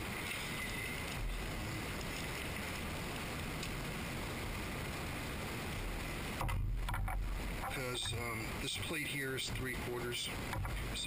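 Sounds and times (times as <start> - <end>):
background hiss: 0.0 - 11.0
light tick: 3.2 - 3.8.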